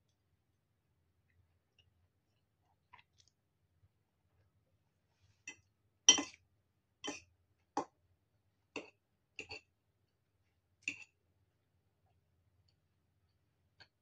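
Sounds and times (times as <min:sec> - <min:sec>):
fork clinking against ceramic bowl: 0:06.1 - 0:06.4.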